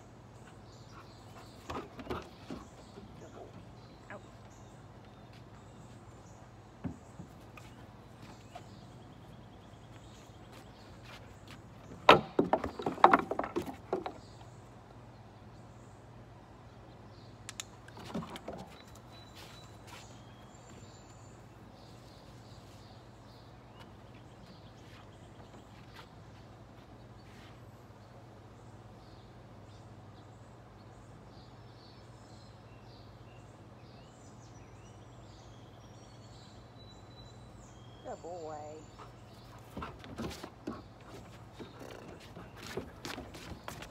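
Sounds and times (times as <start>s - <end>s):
dog paws knocking on wooden deck: 6.8s - 8.7s, 11.4s - 14.2s, 39.5s - 43.9s
birds chirping and calling: 34.2s - 43.9s.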